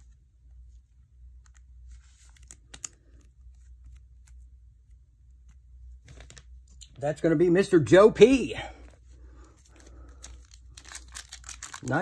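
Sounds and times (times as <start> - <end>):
low steady hum: 0.0 - 12.0
plastic sleeve clicks and rustles: 9.8 - 12.0.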